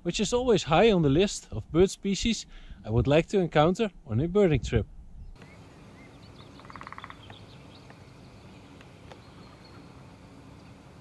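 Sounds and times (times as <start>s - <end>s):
faint bird calls: 5.2s - 10.9s.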